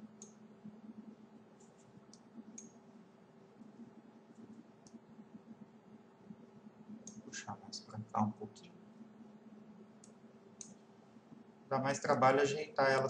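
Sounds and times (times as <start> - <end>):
low electrical hum: 0.0 - 13.0
computer mouse clicks: 0.2 - 0.4, 1.6 - 2.8, 3.6 - 5.1, 7.0 - 7.3, 10.0 - 10.9.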